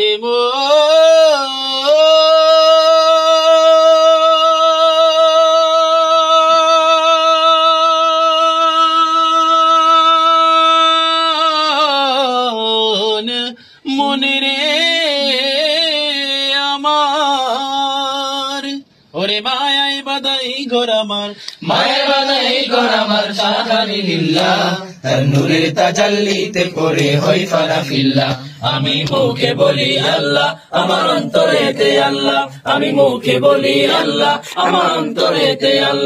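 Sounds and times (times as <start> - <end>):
man singing unaccompanied: 0.0 - 36.0
singer breathing: 13.5 - 13.9, 21.3 - 21.6, 28.4 - 28.6, 30.5 - 30.8, 34.4 - 34.7.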